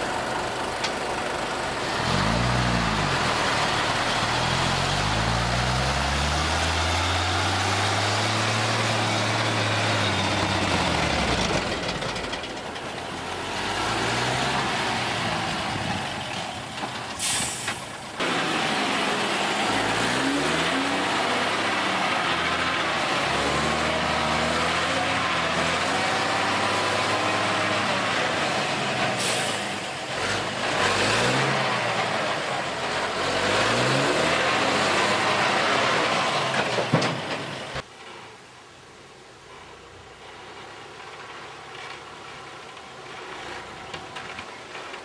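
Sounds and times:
truck diesel engine revving: 0:00.0 - 0:37.8
air hissing: 0:17.2 - 0:18.2.

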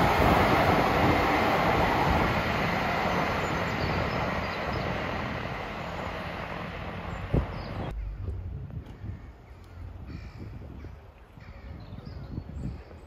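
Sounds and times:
diesel train running on track: 0:00.0 - 0:13.0.

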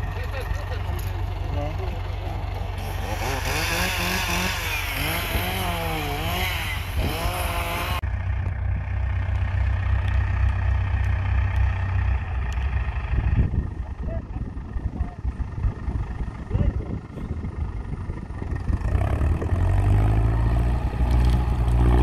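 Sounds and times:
tractor diesel engine running: 0:00.0 - 0:22.0
chainsaw revving: 0:02.8 - 0:08.0.

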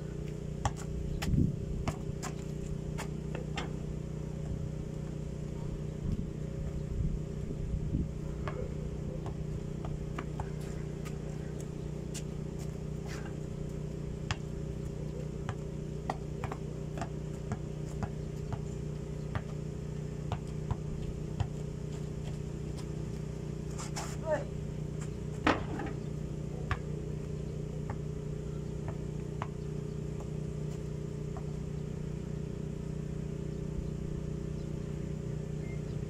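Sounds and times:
low mechanical hum: 0:00.0 - 0:36.0
basketball bouncing on dirt: 0:00.2 - 0:05.3, 0:08.4 - 0:23.6, 0:24.9 - 0:32.0.

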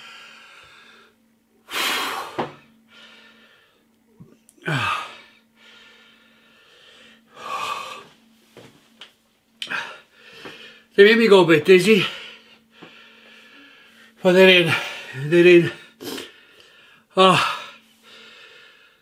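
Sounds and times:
man breathing hard: 0:00.0 - 0:03.9, 0:04.6 - 0:08.2, 0:09.6 - 0:10.9, 0:12.0 - 0:19.0
man gasping: 0:04.6 - 0:06.2.

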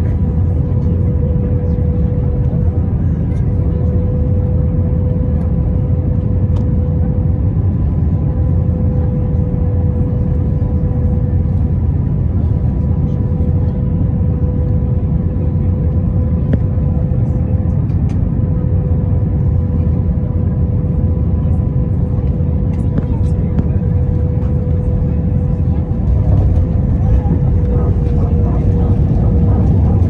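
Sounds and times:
aircraft cabin engine rumble: 0:00.0 - 0:30.0
steady hum: 0:22.7 - 0:30.0.

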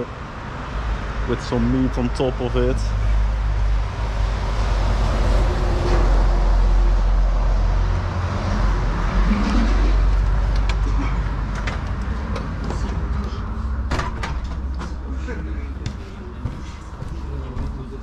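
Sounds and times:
road traffic rumble: 0:00.0 - 0:18.0
glass door clicks and knocks: 0:13.9 - 0:14.9.

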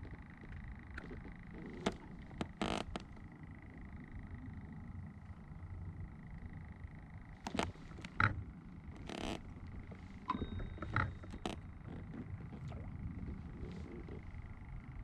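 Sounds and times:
wind and water rumble: 0:00.0 - 0:15.0
faint steady high tone: 0:10.2 - 0:11.9.

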